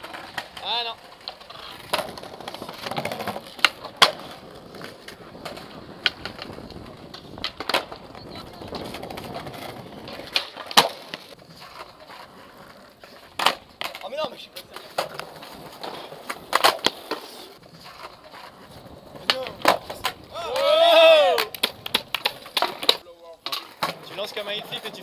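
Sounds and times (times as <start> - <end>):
skateboard clacks: 0.0 - 25.0
skateboard wheels rolling on stone: 0.0 - 25.0.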